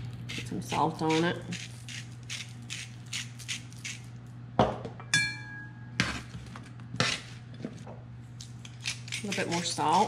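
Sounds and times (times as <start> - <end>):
salt grinder crunching: 0.1 - 4.1, 8.4 - 10.0.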